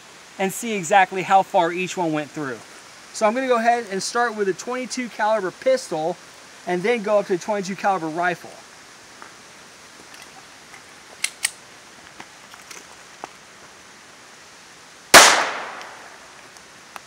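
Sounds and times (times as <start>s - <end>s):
pistol shot with echo: 15.1s - 16.2s.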